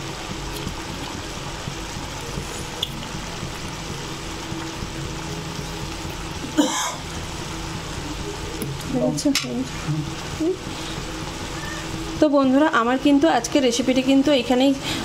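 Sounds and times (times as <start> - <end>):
curry simmering in a pan: 0.0 - 9.0
steady low hum: 0.0 - 15.0.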